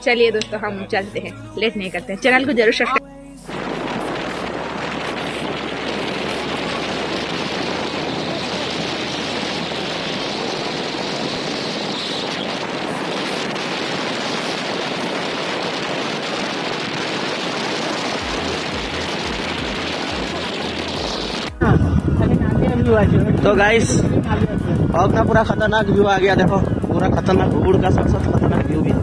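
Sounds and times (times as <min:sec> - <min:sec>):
steady rushing noise: 0:03.5 - 0:29.0.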